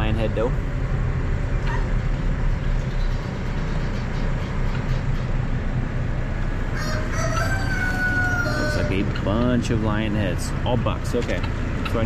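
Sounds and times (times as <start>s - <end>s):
steady low rumble: 0.0s - 12.0s
rooster crowing: 6.6s - 9.0s.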